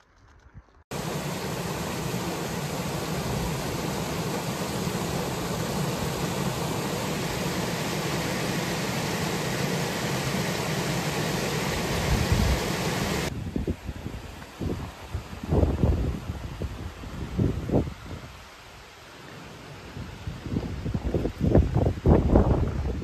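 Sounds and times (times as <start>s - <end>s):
stream rushing over rocks: 0.9s - 13.4s.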